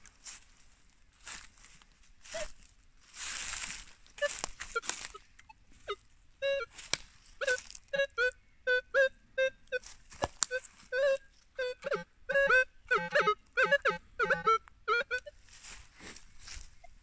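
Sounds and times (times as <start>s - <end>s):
rustle through dry leaves: 0.0s - 5.3s, 15.3s - 17.0s
metal detector beeping: 7.4s - 15.4s.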